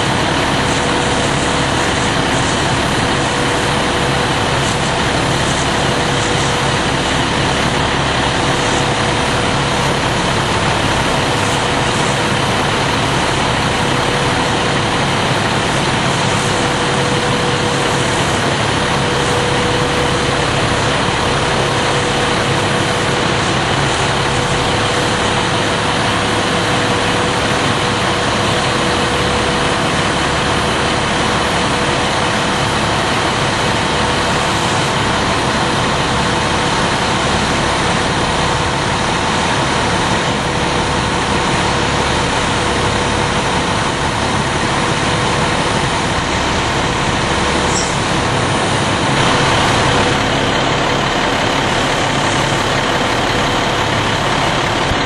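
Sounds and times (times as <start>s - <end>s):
fire truck engine droning: 0.0s - 55.0s
steady whine: 0.0s - 55.0s.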